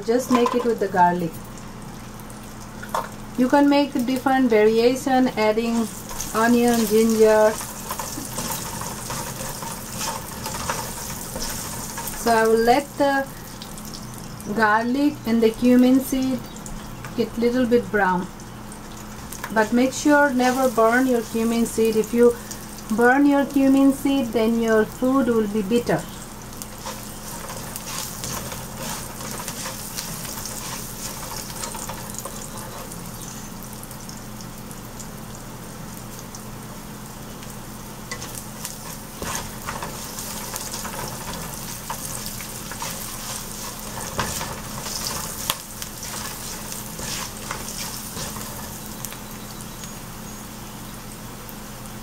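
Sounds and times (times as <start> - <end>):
garlic sizzling in hot oil: 0.0 - 50.4
spatula scraping and tapping pan: 0.2 - 0.7, 5.8 - 12.3, 26.7 - 33.0, 38.1 - 49.2.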